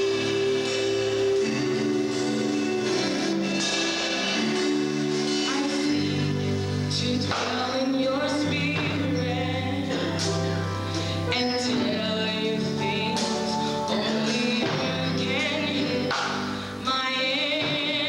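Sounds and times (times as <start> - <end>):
woman singing gospel with vibrato: 6.8 - 18.0.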